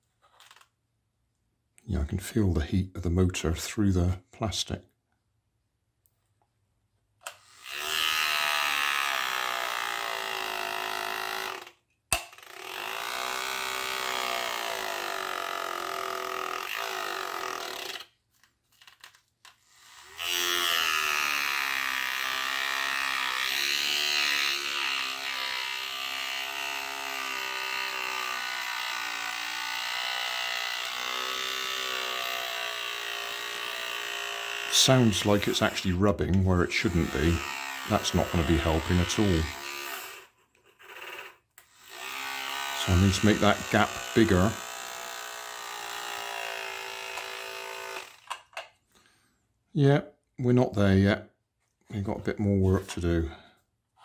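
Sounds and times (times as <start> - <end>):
small electric motor whining: 7.3 - 18.2, 18.8 - 36.0, 36.8 - 48.6.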